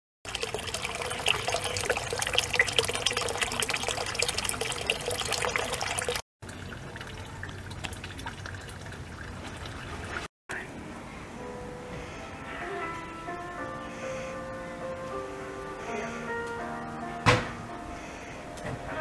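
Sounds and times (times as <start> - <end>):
pond water trickling and bubbling: 0.2 - 10.8.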